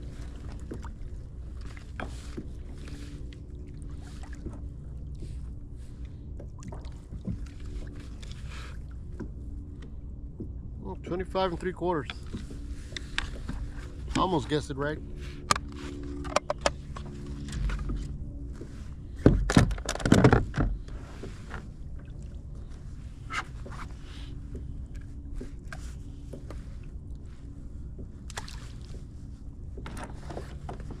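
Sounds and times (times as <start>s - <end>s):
gear clattering on plastic kayak: 15.4s - 18.2s, 19.2s - 21.7s, 29.8s - 31.0s.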